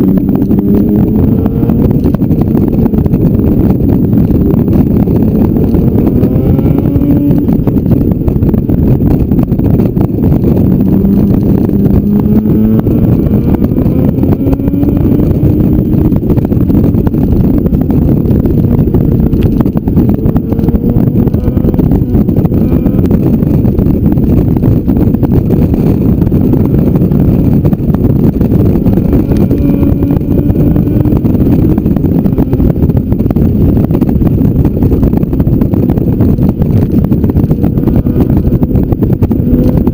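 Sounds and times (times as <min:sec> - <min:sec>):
motorcycle engine accelerating: 0:00.0 - 0:39.9
wind rush on microphone: 0:00.0 - 0:39.9.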